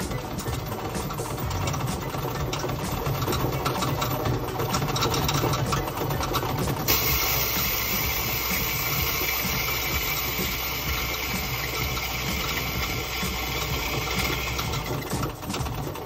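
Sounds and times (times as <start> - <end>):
machine motor humming: 0.0 - 16.0
steady hiss: 6.9 - 14.8.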